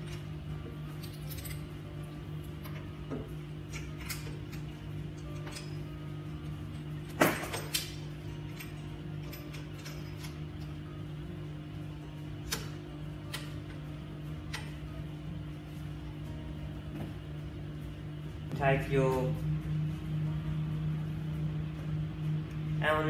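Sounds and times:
steady low hum: 0.0 - 23.0
clicks and knocks of parts: 7.1 - 10.4.

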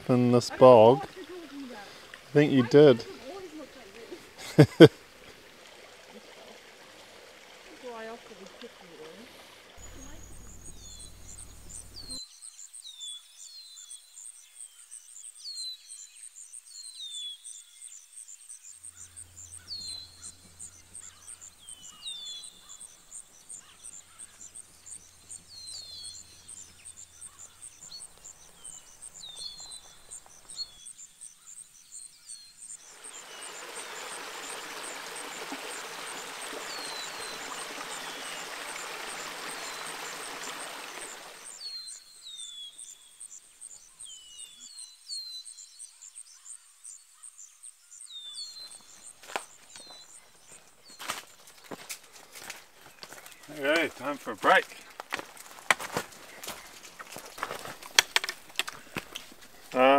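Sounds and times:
insect chirping: 0.0 - 59.9
bird chirping: 9.8 - 55.0
stream rushing: 32.9 - 41.7.

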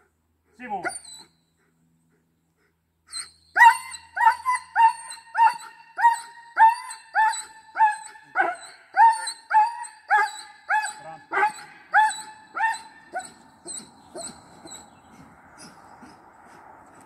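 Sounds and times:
dog barking: 7.8 - 8.7, 9.6 - 13.4.

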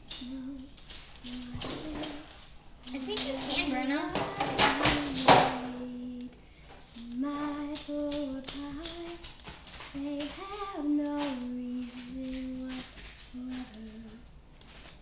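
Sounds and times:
girl singing: 0.0 - 14.3.

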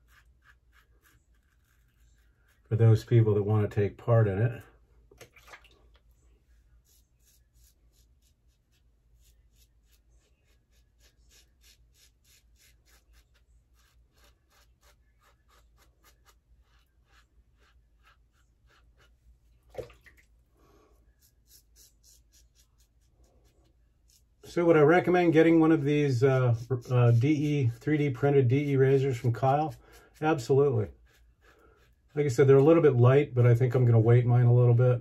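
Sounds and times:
razor scraping stubble: 0.0 - 3.5, 6.8 - 19.2, 21.1 - 32.9.

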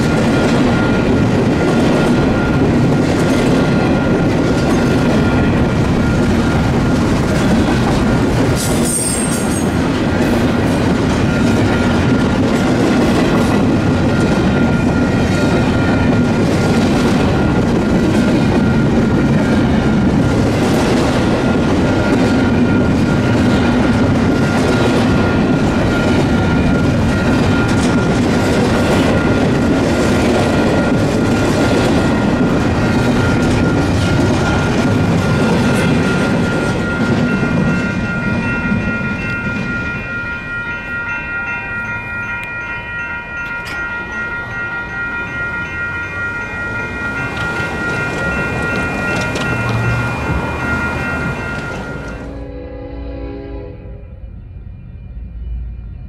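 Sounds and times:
freight train rumbling past: 0.0 - 56.0
wheels clacking over rail joints: 45.6 - 52.3.

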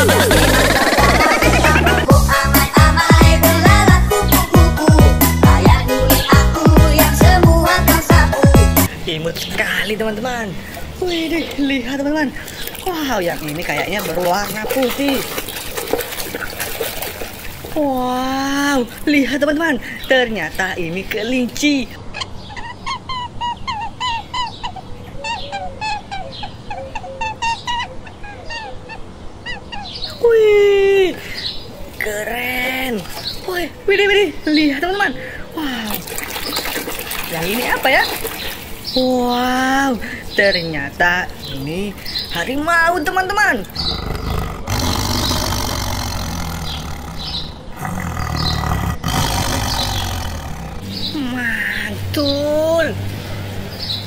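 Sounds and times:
tiger growling: 43.6 - 51.3.

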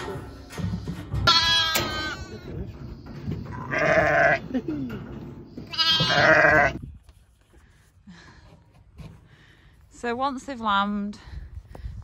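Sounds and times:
lambs bleating: 1.2 - 2.4, 3.5 - 4.4, 5.7 - 6.8.

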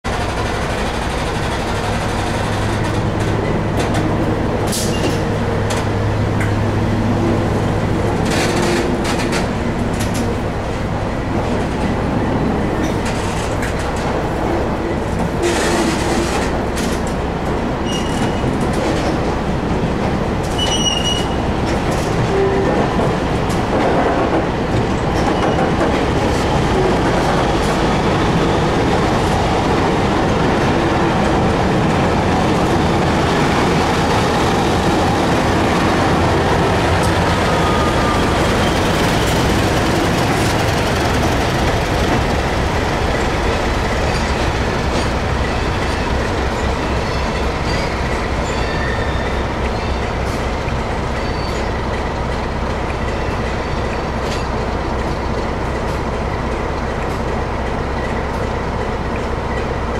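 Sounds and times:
diesel locomotive: 0.0 - 59.9
wheels clacking over rail joints: 0.1 - 10.5, 11.4 - 59.9
train coaches rolling past: 0.1 - 59.9
high wheel squeals: 17.8 - 18.5, 20.6 - 21.4, 45.7 - 50.1.

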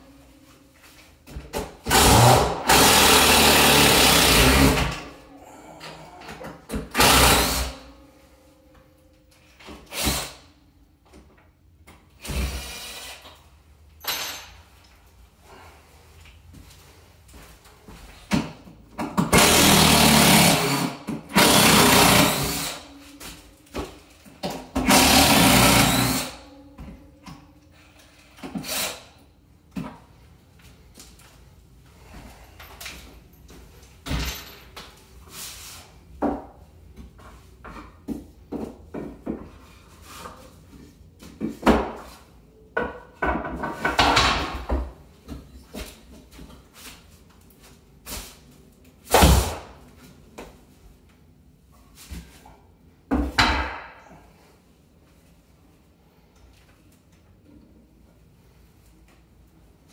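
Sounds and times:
cordless drill running: 24.9 - 26.3.

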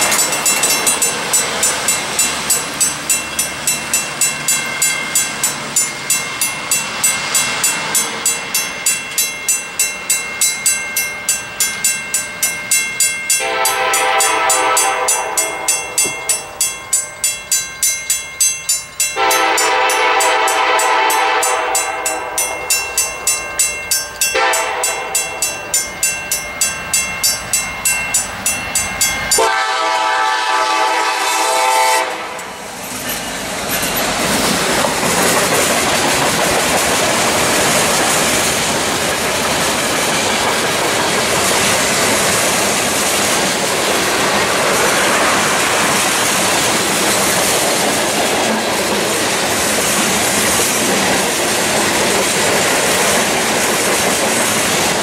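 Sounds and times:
crossing warning bells ringing: 0.0 - 55.0
train air horn blasts: 13.4 - 16.6, 19.2 - 22.5, 24.4 - 25.4, 29.4 - 32.6.

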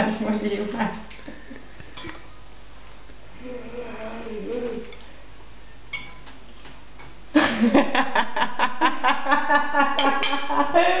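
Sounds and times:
woman laughing: 7.4 - 11.0.

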